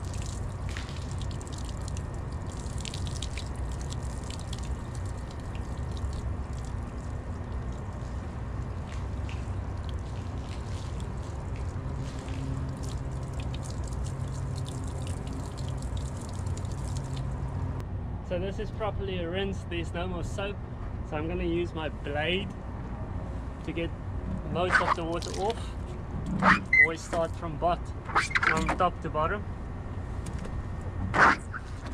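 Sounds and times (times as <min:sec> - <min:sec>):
water splashing and dripping: 0:00.0 - 0:17.8, 0:24.4 - 0:27.4
steady low rumble: 0:00.0 - 0:31.9
hose spraying water: 0:24.6 - 0:25.6.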